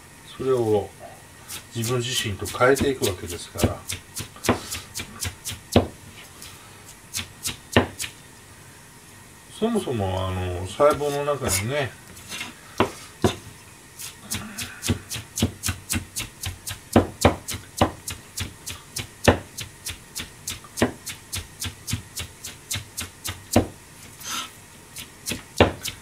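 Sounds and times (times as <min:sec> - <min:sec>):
cleaver chopping on plastic board: 0:02.5 - 0:06.0, 0:07.2 - 0:08.1, 0:14.3 - 0:23.7, 0:25.3 - 0:26.0.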